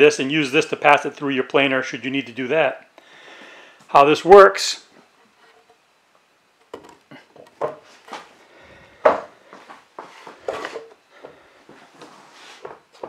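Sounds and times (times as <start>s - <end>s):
wooden knocks and scrapes: 5.0s - 5.8s, 6.7s - 8.3s, 9.0s - 11.4s.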